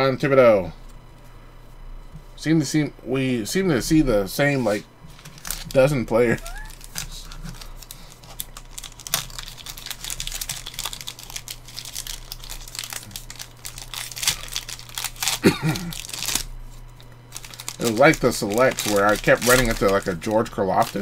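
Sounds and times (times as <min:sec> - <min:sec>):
plastic wrapper crinkling and tearing: 0:05.1 - 0:21.0.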